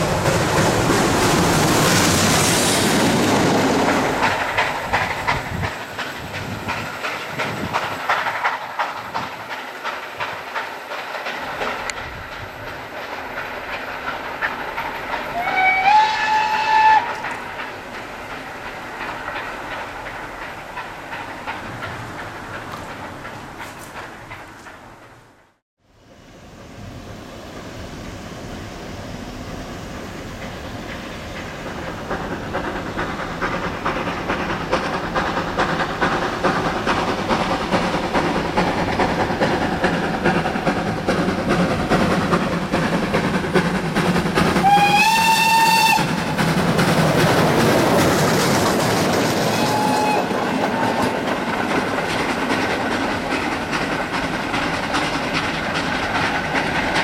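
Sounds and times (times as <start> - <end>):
train wheel clatter: 0.0 - 25.6, 27.6 - 57.0
steam whistle: 15.3 - 17.2, 44.6 - 46.2, 49.5 - 50.9.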